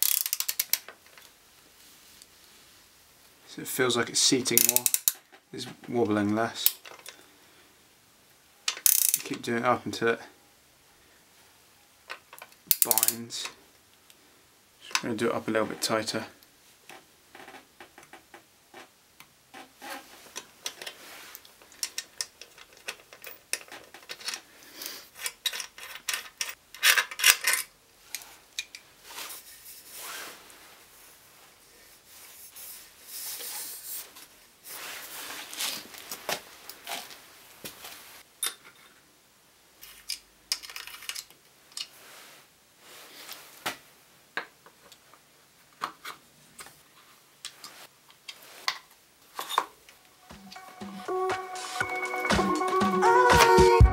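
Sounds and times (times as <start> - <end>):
socket ratchet clicking: 0.0 - 0.8, 8.8 - 9.2.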